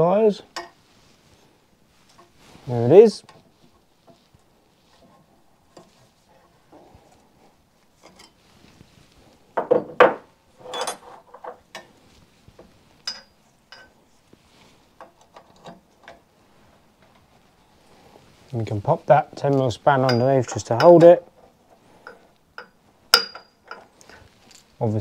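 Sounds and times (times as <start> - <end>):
metal tools clinking and knocking: 8.0 - 8.4, 9.6 - 11.9, 13.0 - 14.0, 20.0 - 24.8.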